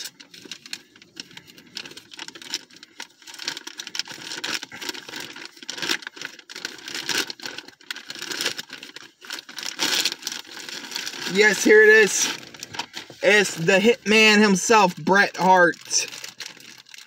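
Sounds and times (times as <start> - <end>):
packaging rustling and tearing: 0.0 - 13.6, 15.2 - 17.0.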